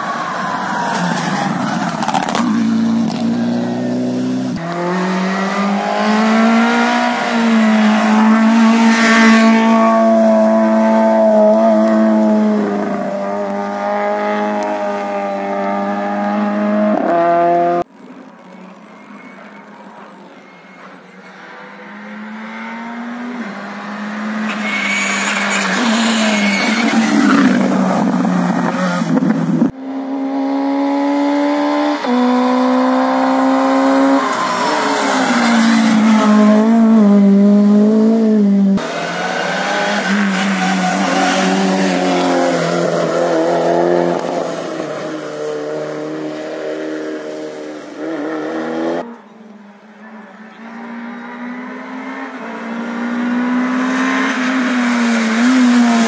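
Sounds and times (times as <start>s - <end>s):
rally car engines revving: 0.0s - 49.3s, 49.9s - 56.0s.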